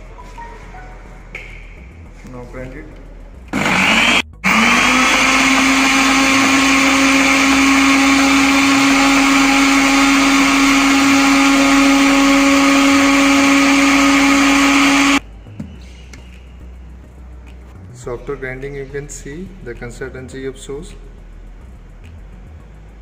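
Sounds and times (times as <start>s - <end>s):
blender motor whining: 3.5s - 15.2s.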